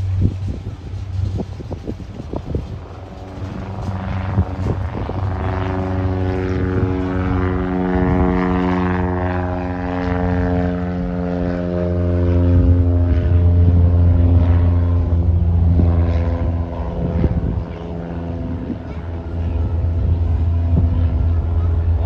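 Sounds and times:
propeller plane engine drone: 0:00.0 - 0:22.0.

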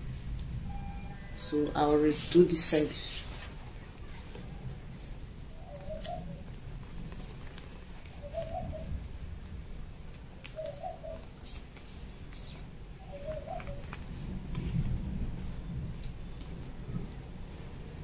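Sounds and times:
fabric rustling: 0:01.4 - 0:12.6
dove cooing: 0:04.0 - 0:07.5, 0:08.1 - 0:09.0, 0:10.5 - 0:11.3, 0:13.0 - 0:14.4.

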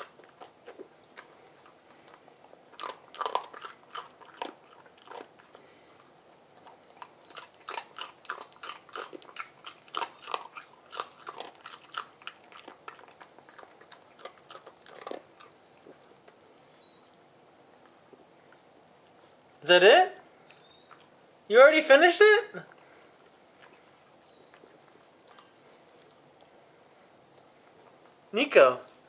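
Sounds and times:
dog crunching ice cube: 0:00.0 - 0:16.4.

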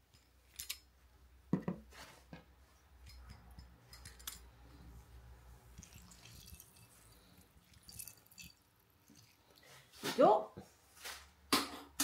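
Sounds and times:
juice dripping into bowl: 0:05.7 - 0:09.7.

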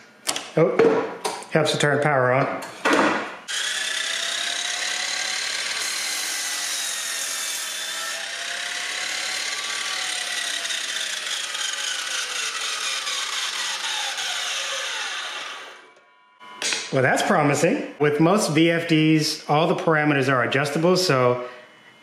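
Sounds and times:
miter saw whine: 0:03.5 - 0:17.6.

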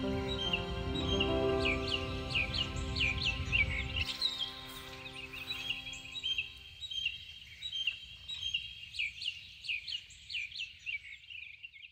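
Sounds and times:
held music chord: 0:00.0 - 0:06.8
birds chirping and singing: 0:00.0 - 0:11.9.

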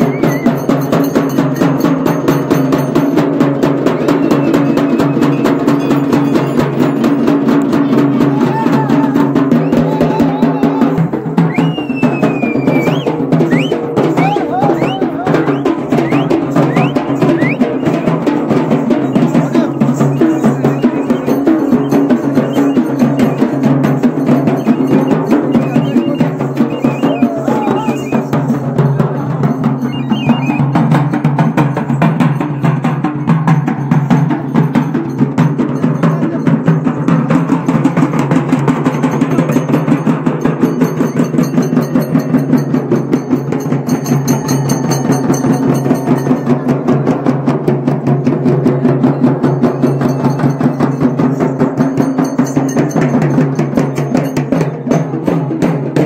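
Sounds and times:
barrel drums beaten fast: 0:00.0 - 0:56.0.

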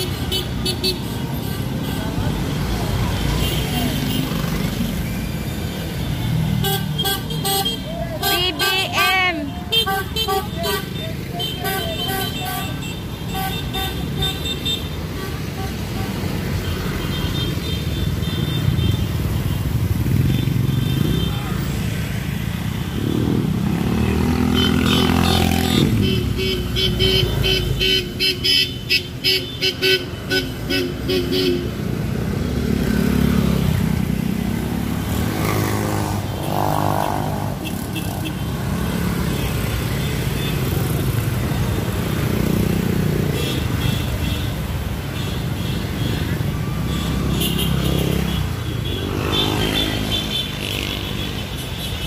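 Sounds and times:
motorcycle and car engines revving: 0:18.1 - 0:28.2, 0:30.4 - 0:45.1, 0:45.8 - 0:51.9.

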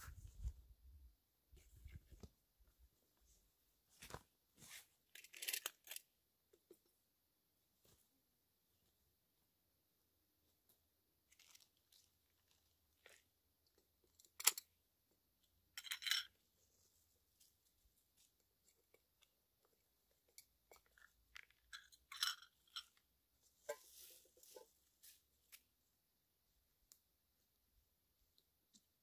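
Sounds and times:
crunchy crinkles: 0:04.0 - 0:06.1, 0:11.3 - 0:13.3.

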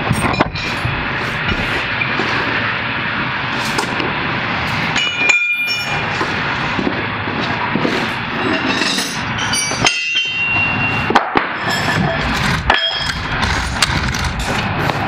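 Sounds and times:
metal clanking: 0:08.3 - 0:15.0.

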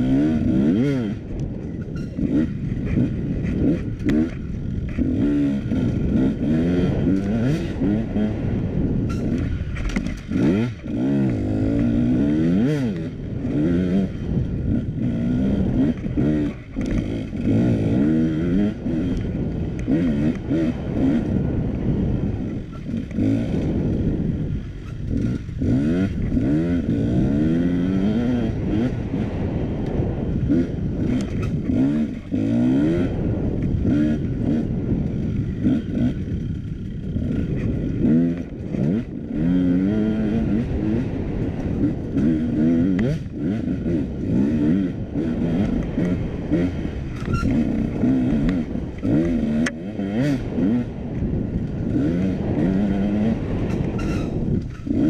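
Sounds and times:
dirt bike engine revving: 0:00.0 - 0:55.0
bike knocks and rattles: 0:09.0 - 0:11.4.

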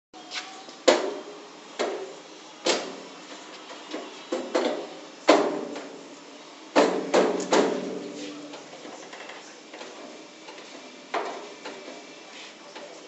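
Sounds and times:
hammer striking steel locker: 0:06.8 - 0:08.2.

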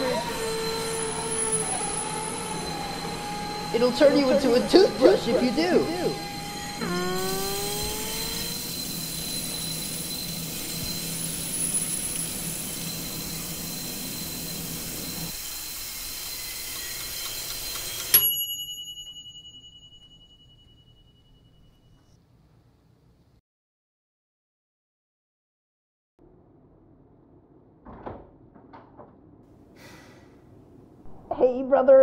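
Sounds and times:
bright bell-like ding: 0:18.1 - 0:22.2.

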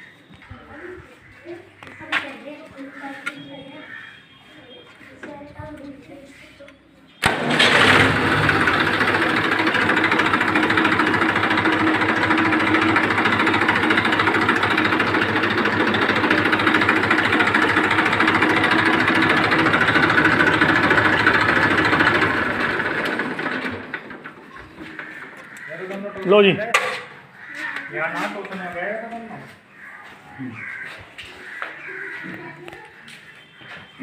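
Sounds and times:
diesel tractor engine idling: 0:07.2 - 0:26.4.

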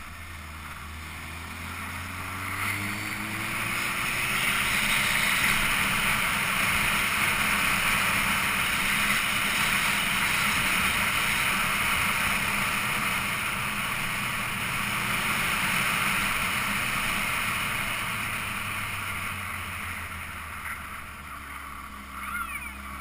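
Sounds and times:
vehicle road noise: 0:00.0 - 0:23.0.

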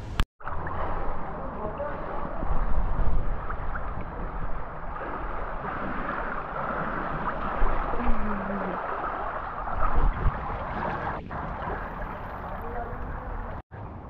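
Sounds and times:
pool water splashing: 0:00.1 - 0:13.6.

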